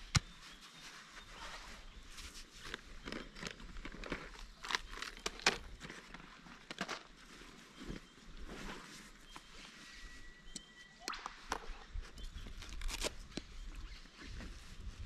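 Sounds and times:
rustling and crinkling of gear: 0:00.2 - 0:10.0.

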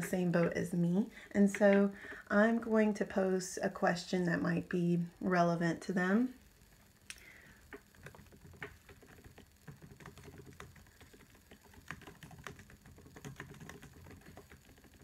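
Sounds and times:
laptop keyboard typing: 0:07.2 - 0:15.0.

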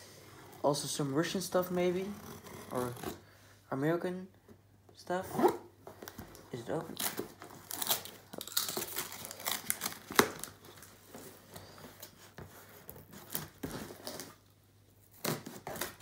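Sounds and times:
cardboard and tape rustling: 0:05.8 - 0:16.0
sharp cardboard crack: 0:07.0 - 0:10.6, 0:15.1 - 0:16.0.

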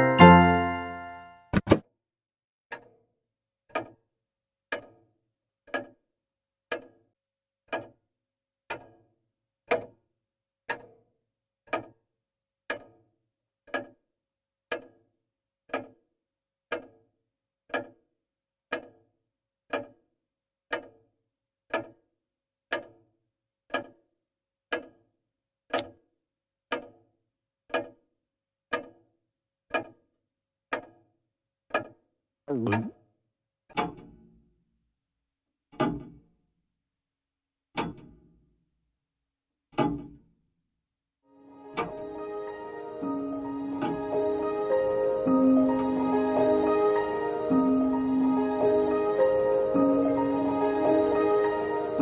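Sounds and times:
wall clock ticking: 0:03.7 - 0:04.0, 0:04.7 - 0:05.1, 0:05.7 - 0:06.0, 0:06.7 - 0:07.0, 0:07.7 - 0:08.0, 0:08.7 - 0:09.1, 0:09.7 - 0:10.0, 0:11.7 - 0:12.0, 0:12.7 - 0:13.0, 0:13.7 - 0:14.0, 0:14.7 - 0:15.0, 0:15.7 - 0:16.0, 0:16.7 - 0:17.0, 0:17.7 - 0:18.0, 0:18.7 - 0:19.0, 0:19.7 - 0:20.0, 0:20.7 - 0:21.0, 0:21.7 - 0:22.0, 0:22.7 - 0:23.1, 0:23.7 - 0:24.0, 0:24.7 - 0:25.0, 0:26.7 - 0:27.0, 0:27.7 - 0:28.0, 0:28.7 - 0:29.0, 0:29.7 - 0:30.0, 0:30.7 - 0:31.0, 0:31.7 - 0:32.0, 0:35.8 - 0:36.3, 0:39.8 - 0:40.2.

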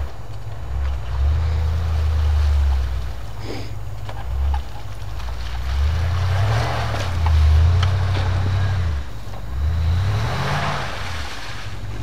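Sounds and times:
engine revving hard: 0:05.6 - 0:12.0.

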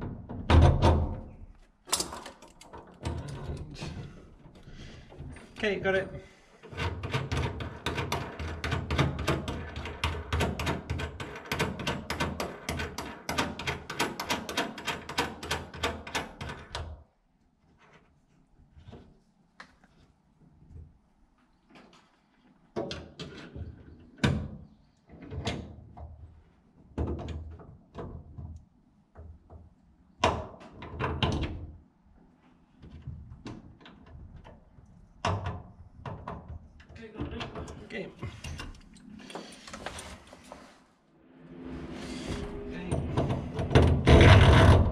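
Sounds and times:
metal knocks and scrapes: 0:38.3 - 0:44.9.

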